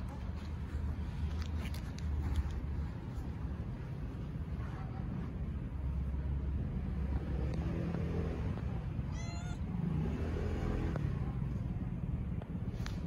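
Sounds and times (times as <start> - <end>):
cat meowing: 9.1 - 9.7.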